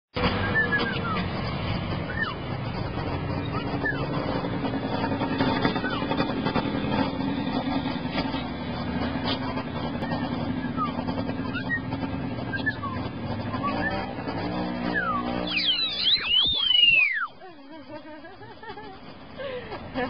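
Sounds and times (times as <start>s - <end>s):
engine-like rumble: 0.2s - 20.0s
myna whistled chirps: 0.4s - 1.3s, 2.0s - 2.4s, 3.4s - 4.2s, 5.0s - 6.2s, 10.0s - 14.1s, 14.8s - 17.5s.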